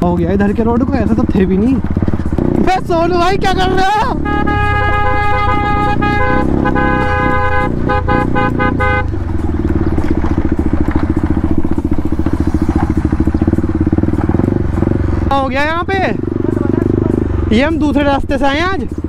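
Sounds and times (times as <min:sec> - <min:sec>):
motorcycle engine pulsing: 0:00.0 - 0:19.0
vehicle horn honking: 0:03.5 - 0:09.4.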